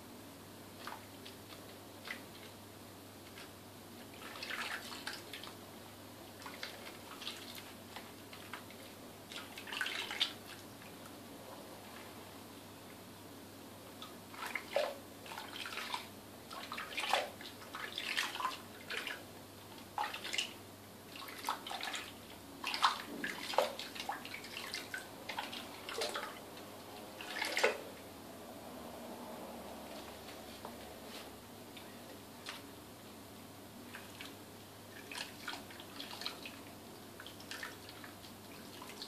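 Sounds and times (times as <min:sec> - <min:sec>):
water splashing and sloshing: 0:04.1 - 0:05.6, 0:06.4 - 0:11.1, 0:14.0 - 0:28.0, 0:33.8 - 0:39.0.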